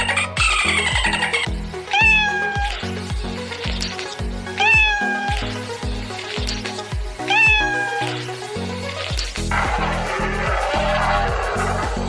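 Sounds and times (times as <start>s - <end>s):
background music with steady beat: 0.0s - 12.0s
cat meowing: 0.7s - 2.8s, 4.5s - 5.6s, 7.2s - 8.2s.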